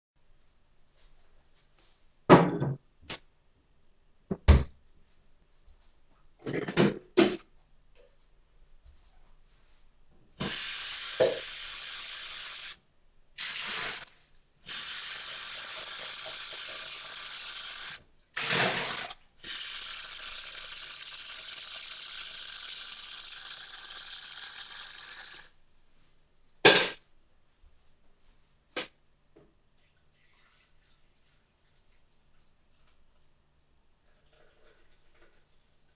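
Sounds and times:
water rushing from a tap: 10.4s - 12.8s, 14.7s - 25.5s
sharp knock: 26.7s - 27.0s.

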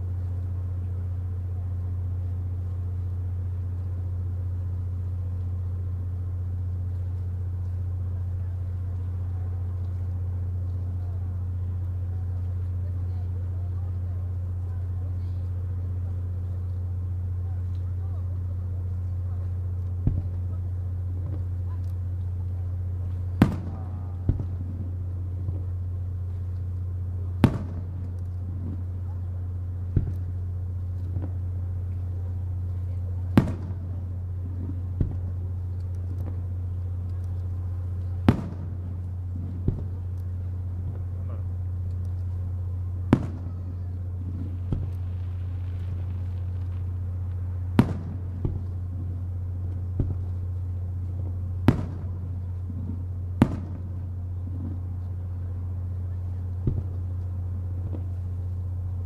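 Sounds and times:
steady low hum: 0.0s - 59.0s
fireworks bangs: 19.2s - 21.8s, 22.4s - 26.4s, 27.2s - 58.5s.

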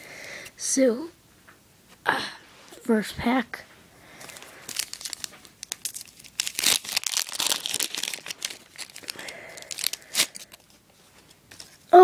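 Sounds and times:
wrapper tearing and crinkling: 4.2s - 12.0s.

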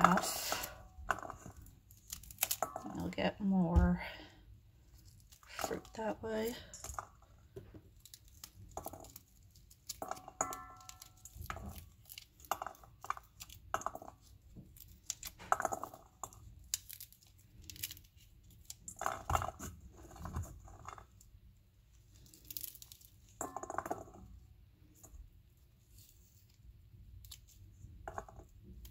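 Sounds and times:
seeds dropping into metal bowl: 0.0s - 3.2s, 5.0s - 21.4s, 22.1s - 25.3s, 25.9s - 28.9s
pomegranate rind tearing: 0.1s - 3.1s, 7.0s - 21.2s, 22.0s - 23.4s.

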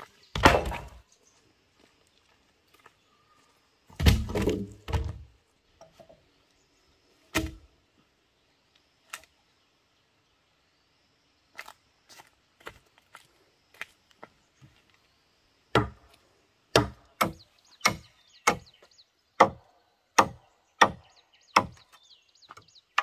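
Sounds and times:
bamboo poles knocking together: 0.3s - 1.0s, 3.9s - 6.2s, 7.3s - 7.7s.

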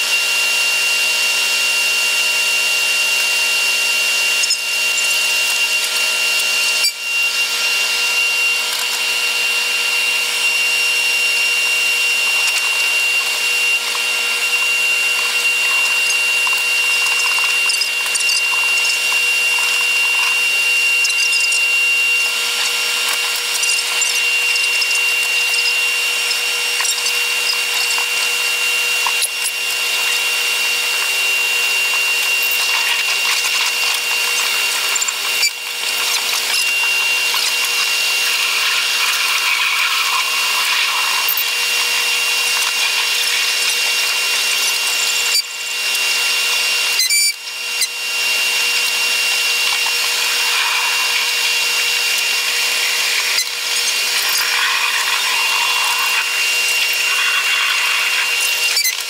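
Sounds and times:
electric train high whine: 49.2s - 58.3s
hiss: 54.2s - 58.4s.

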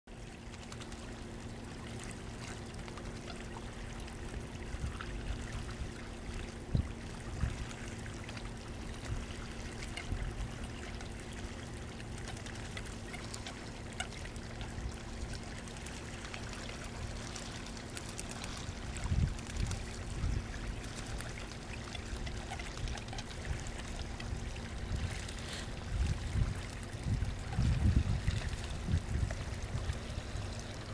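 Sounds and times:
river water trickling: 0.1s - 30.9s
steady low hum: 0.1s - 30.9s.

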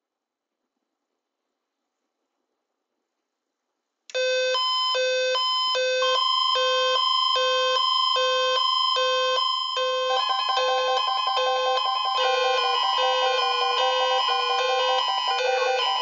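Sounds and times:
steady alarm tone: 4.2s - 16.0s
two-pitch electronic alarm beep: 4.2s - 16.0s
fast beeping: 10.0s - 16.0s.

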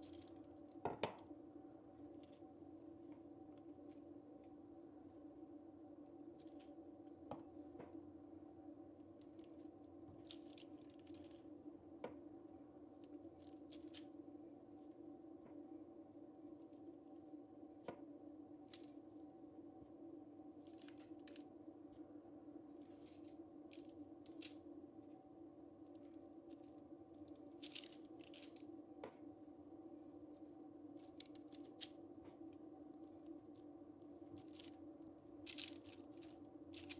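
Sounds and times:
faint crinkles and ticks: 0.0s - 0.7s, 9.1s - 11.6s, 20.6s - 22.0s, 22.7s - 25.2s, 25.8s - 29.2s, 30.2s - 36.9s
low hum: 0.0s - 36.9s.

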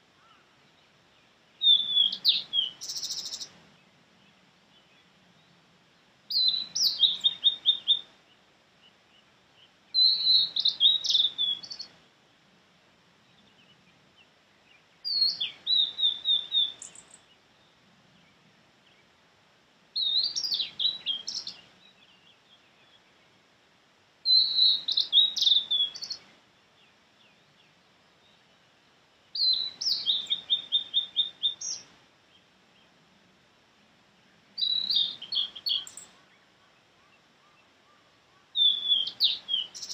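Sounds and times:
flycatcher singing: 1.6s - 3.5s, 6.3s - 8.1s, 9.9s - 12.0s, 14.6s - 17.4s, 20.0s - 23.0s, 24.2s - 28.5s, 29.4s - 31.9s, 34.6s - 37.7s, 38.6s - 39.9s.

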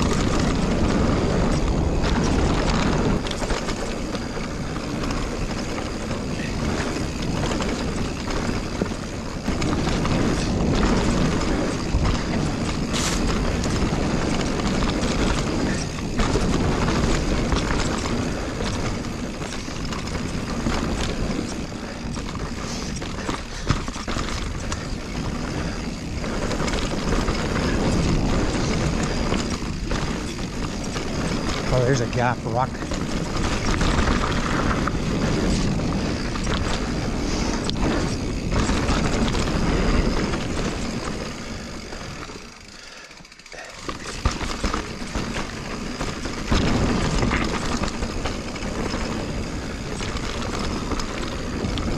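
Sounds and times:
wind rushing over microphone: 0.0s - 42.7s, 43.9s - 51.9s
bike rattling: 0.0s - 51.9s
tyres rumbling on dirt: 0.0s - 51.9s.

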